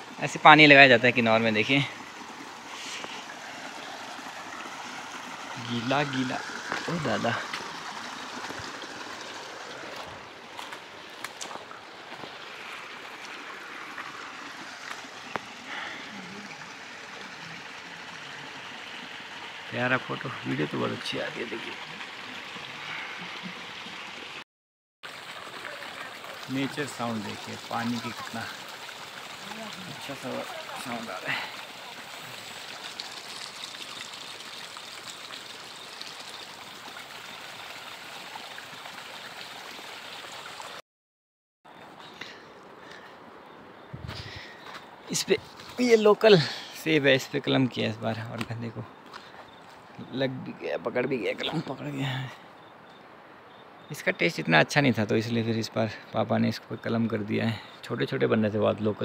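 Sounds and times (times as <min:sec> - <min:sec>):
irrigation water rushing: 0:00.0 - 0:24.4, 0:25.0 - 0:40.8, 0:41.7 - 0:59.0.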